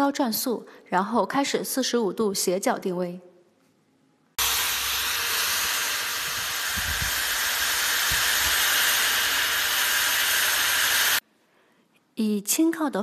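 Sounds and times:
electric drill whirring: 0:04.4 - 0:11.2.

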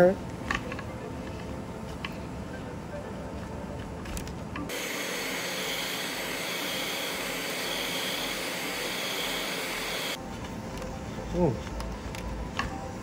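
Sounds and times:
heat gun blowing hot air: 0:04.7 - 0:10.2.

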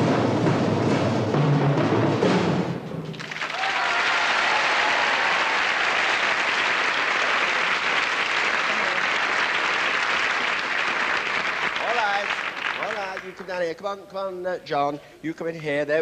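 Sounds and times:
marching band drums: 0:00.0 - 0:03.2
audience applauding: 0:03.1 - 0:13.8.

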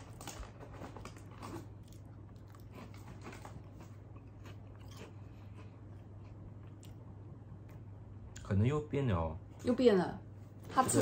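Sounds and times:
person chewing crunchy crackers: 0:00.0 - 0:07.1
steady low hum: 0:00.0 - 0:11.0.

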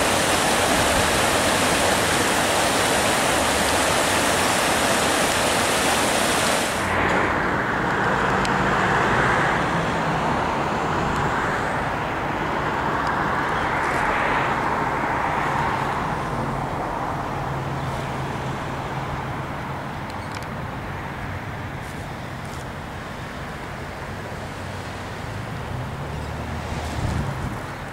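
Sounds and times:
floodwater rushing: 0:00.0 - 0:19.2
road traffic passing: 0:00.0 - 0:27.9.

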